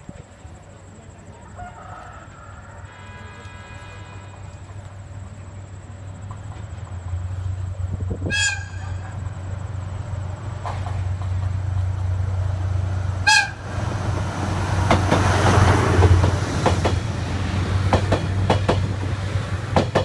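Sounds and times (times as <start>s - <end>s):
locomotive rumbling: 0.0s - 20.0s
faint train horn: 1.4s - 5.4s, 8.1s - 9.3s, 13.2s - 13.7s.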